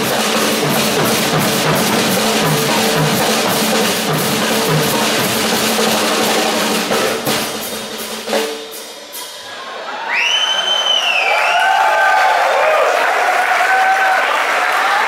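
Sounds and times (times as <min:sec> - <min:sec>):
fast drum rolls and strokes: 0:00.0 - 0:09.6
cymbals: 0:00.0 - 0:11.1.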